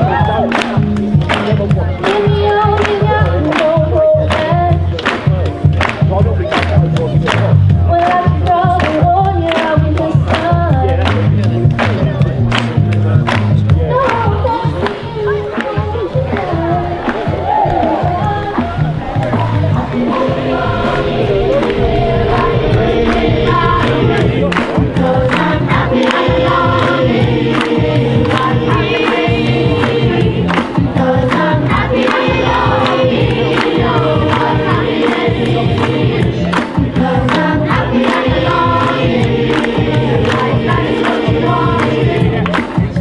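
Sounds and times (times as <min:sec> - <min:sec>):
hand claps: 0:00.4 - 0:15.0, 0:23.1 - 0:43.0
choir singing: 0:16.4 - 0:42.6.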